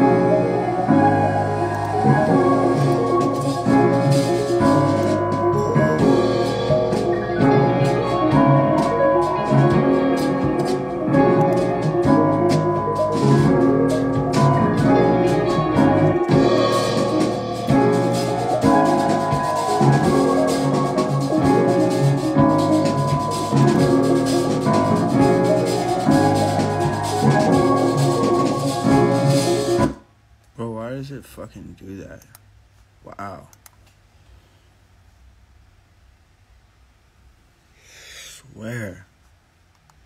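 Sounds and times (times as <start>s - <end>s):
trap beat with melodic loop: 0.0s - 30.0s.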